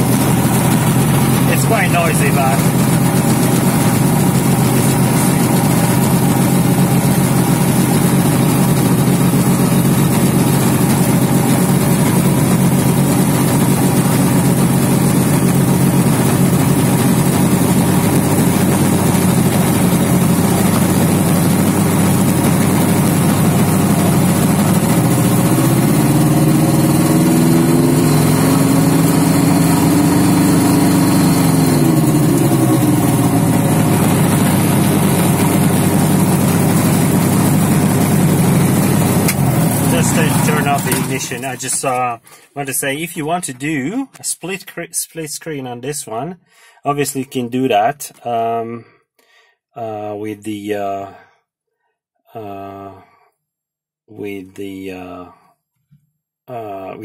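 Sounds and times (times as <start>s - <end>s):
two-stroke engine idling and revving: 0.0s - 41.7s.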